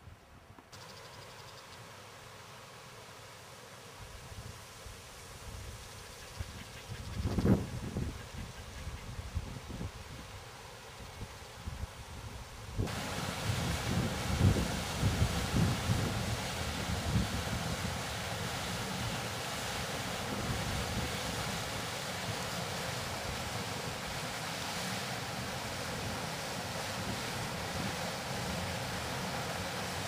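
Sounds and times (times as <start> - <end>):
wind buffeting microphone: 6.4 - 10.1
flowing water rushing: 9.7 - 30.0.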